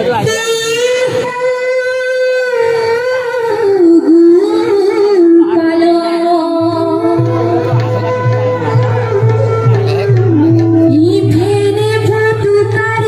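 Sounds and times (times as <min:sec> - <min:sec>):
woman singing into microphone: 0:00.2 - 0:08.3, 0:10.2 - 0:13.0
drum steady beat: 0:07.0 - 0:12.6.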